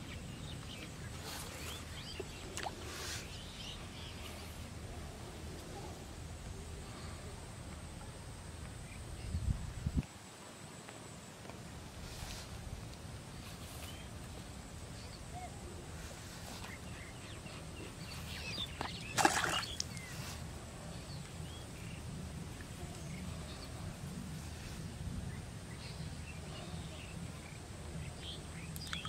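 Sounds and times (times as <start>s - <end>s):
low wind rumble: 0.0s - 29.0s
bird chirps: 28.2s - 29.0s.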